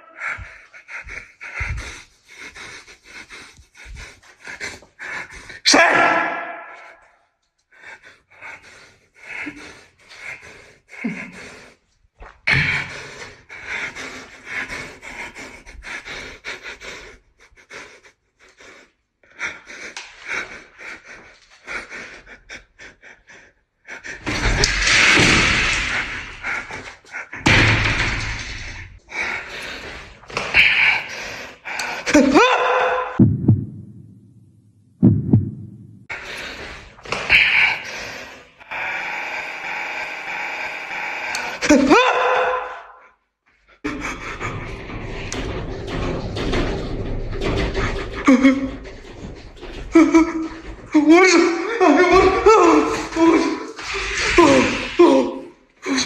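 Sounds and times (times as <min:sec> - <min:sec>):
man panting heavily: 0:00.0 - 0:05.7, 0:07.7 - 0:24.3.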